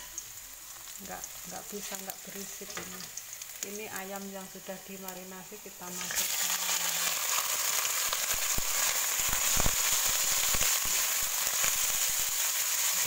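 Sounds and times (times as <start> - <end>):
chicken sizzling in oil: 0.0 - 13.0.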